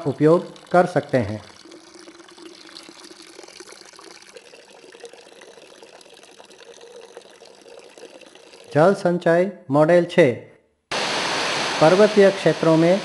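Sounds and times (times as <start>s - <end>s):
faint water trickle: 0.0s - 9.1s.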